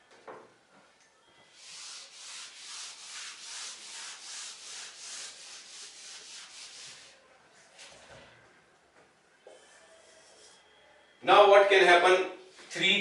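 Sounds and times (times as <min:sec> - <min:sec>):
eraser wiping whiteboard: 0:01.5 - 0:07.2.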